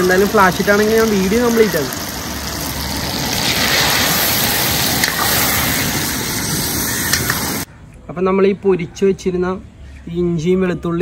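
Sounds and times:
hot oil sizzling in a wok: 0:00.0 - 0:07.7
oil popping: 0:00.0 - 0:07.7.

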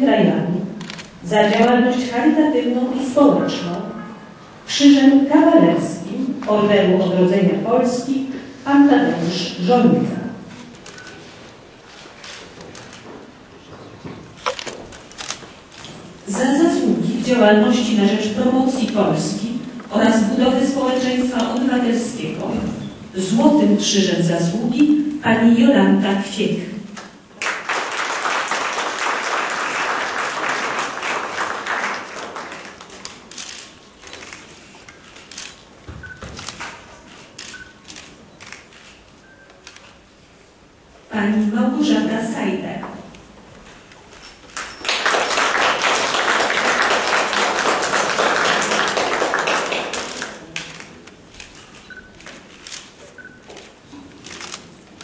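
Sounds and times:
audience applauding: 0:27.4 - 0:33.1, 0:44.6 - 0:50.5.

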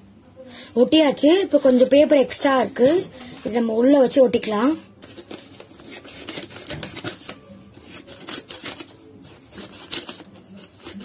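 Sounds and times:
paper rustling and crinkling: 0:01.5 - 0:03.6, 0:05.0 - 0:11.0.

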